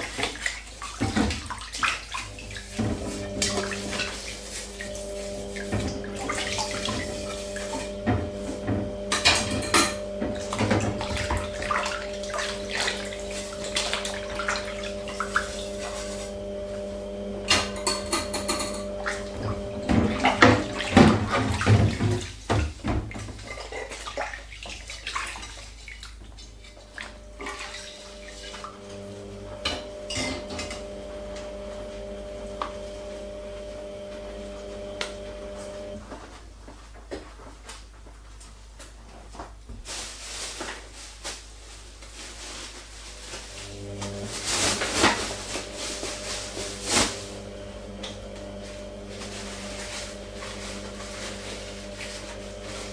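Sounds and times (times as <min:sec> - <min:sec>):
dishes clattering in water: 0:00.0 - 0:16.0, 0:17.4 - 0:30.9.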